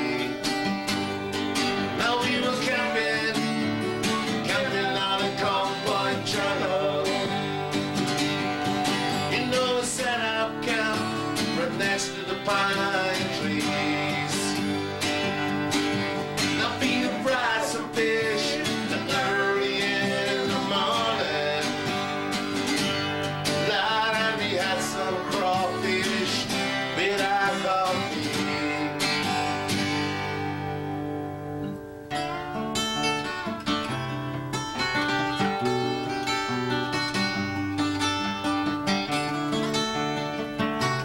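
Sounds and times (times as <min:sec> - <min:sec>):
man singing: 0:00.0 - 0:00.6, 0:01.8 - 0:07.7, 0:08.8 - 0:15.0, 0:16.3 - 0:29.7
acoustic guitar strumming: 0:00.0 - 0:41.0.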